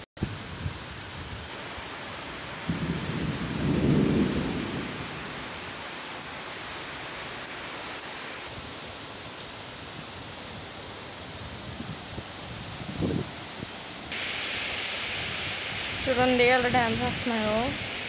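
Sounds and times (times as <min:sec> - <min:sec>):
heavy rain hissing: 0:00.2 - 0:18.0
thunder rumbling: 0:01.5 - 0:06.4.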